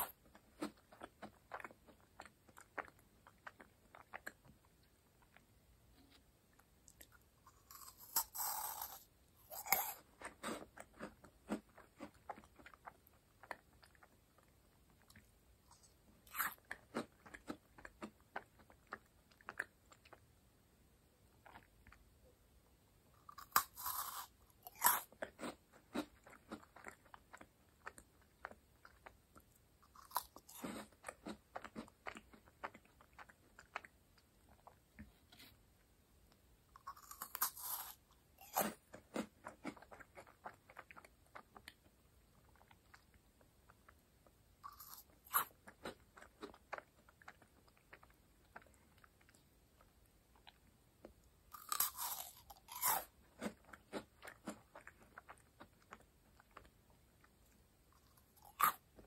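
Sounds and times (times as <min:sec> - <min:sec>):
crackling chewing: 0:00.0 - 0:20.3, 0:23.1 - 0:35.6, 0:36.3 - 0:59.0
crunching bites of meringue: 0:23.2 - 0:29.2, 0:29.8 - 0:33.9, 0:36.8 - 0:41.7, 0:51.5 - 0:56.7.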